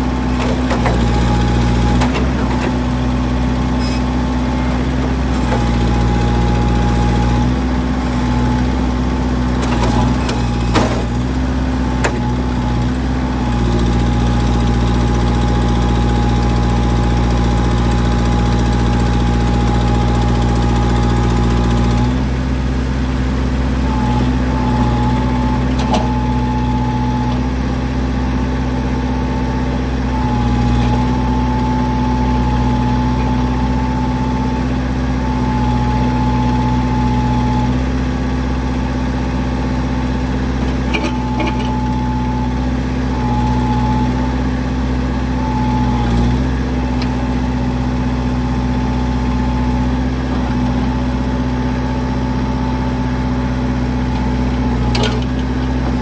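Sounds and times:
backhoe diesel engine running: 0.0s - 56.0s
hydraulic whine: 40.7s - 44.4s.

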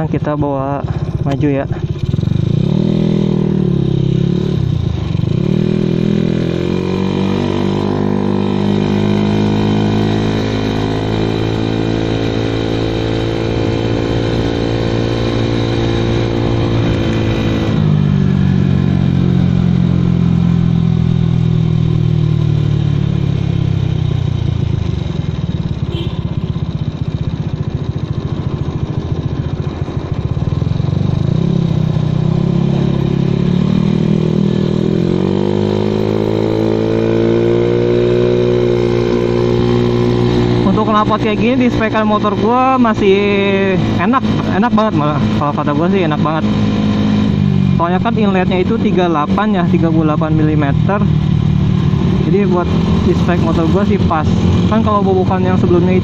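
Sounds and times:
scooter engine revving: 0.0s - 56.0s.

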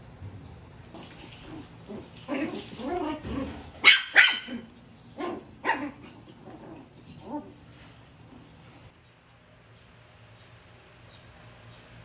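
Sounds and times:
puppies growling: 1.4s - 3.8s, 4.4s - 8.9s
puppy yapping: 2.3s - 7.5s
puppy barking: 3.8s - 6.2s.

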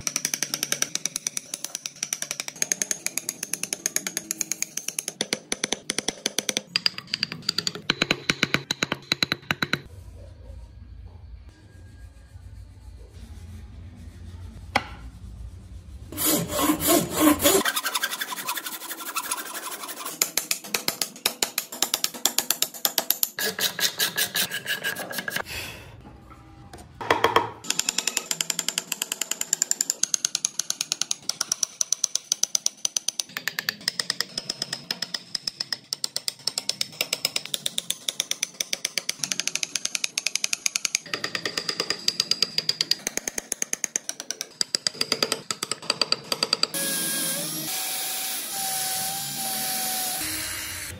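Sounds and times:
steel chisel chipping wood: 16.2s - 25.4s.

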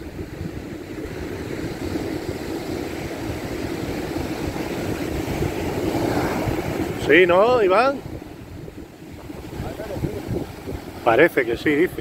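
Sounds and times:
wind noise on microphone: 0.0s - 12.0s
surf breaking: 2.3s - 12.0s.

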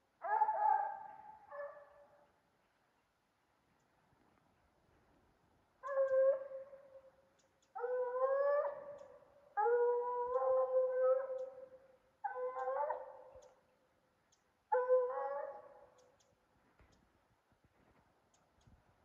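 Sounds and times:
hounds baying: 5.8s - 7.1s, 7.8s - 13.5s, 14.7s - 15.9s.

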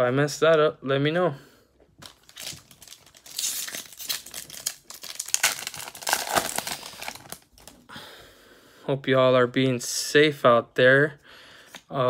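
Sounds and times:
wrapper crinkling and tearing: 2.0s - 7.8s.

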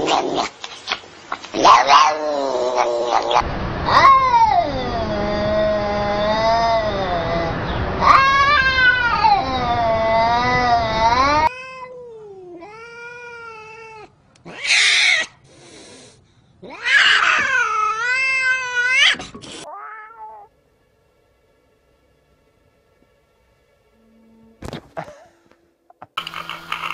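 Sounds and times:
harsh noisy cat cry: 1.6s - 11.9s, 12.6s - 15.4s, 16.6s - 20.5s
cats yowling: 1.6s - 15.4s, 16.6s - 20.5s.

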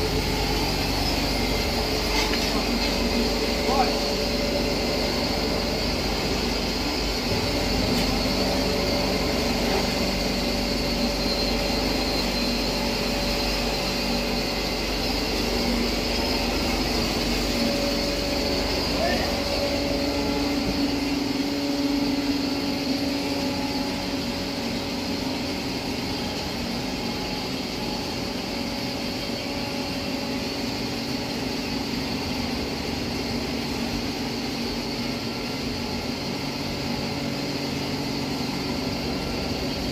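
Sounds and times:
hammer mill grinding: 0.0s - 26.6s.

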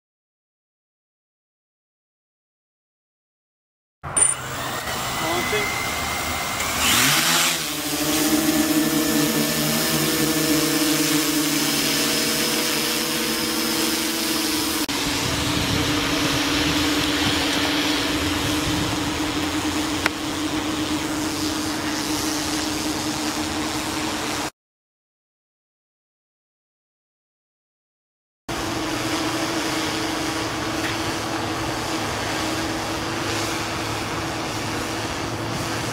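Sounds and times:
drone motors whining: 4.1s - 24.5s, 28.5s - 35.9s
rush of air: 14.5s - 24.2s.

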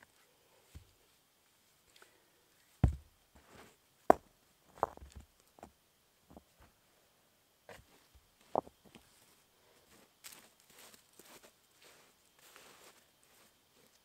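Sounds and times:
rock knocking against rock: 2.8s - 3.1s, 4.1s - 5.2s
stone thudding onto dirt: 2.8s - 3.1s, 4.1s - 5.2s.

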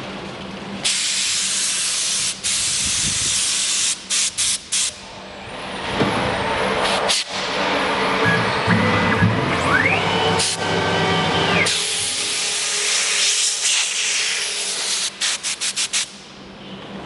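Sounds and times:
machine running with steady hum: 5.0s - 15.2s.

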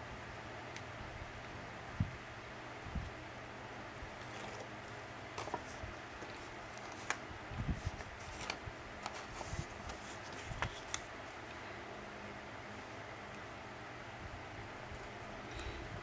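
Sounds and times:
paper rustling: 4.1s - 11.1s.

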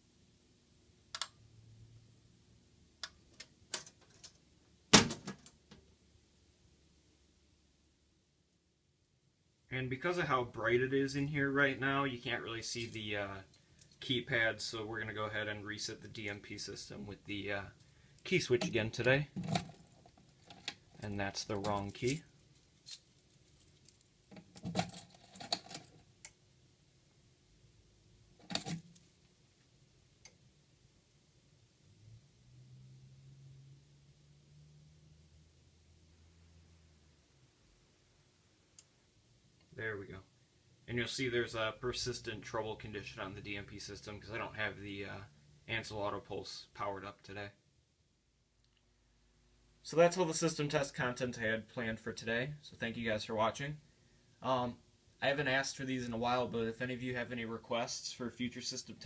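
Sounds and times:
metal door banging shut: 4.9s - 5.4s
small metal rattles: 18.7s - 26.1s.

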